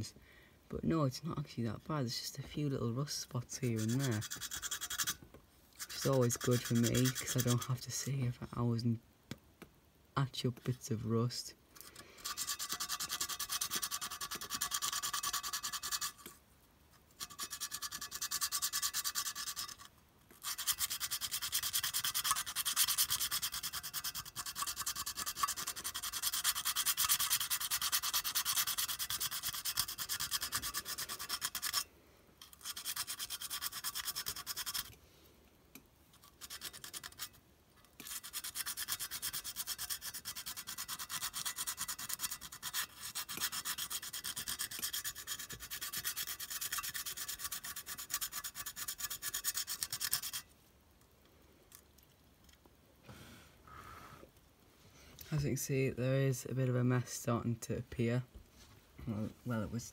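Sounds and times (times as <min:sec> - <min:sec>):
sandpaper rubbing on metal: 0:03.6 - 0:05.2, 0:05.8 - 0:07.8, 0:12.2 - 0:16.3, 0:17.2 - 0:31.8, 0:32.6 - 0:34.9, 0:36.3 - 0:37.4, 0:38.0 - 0:50.5.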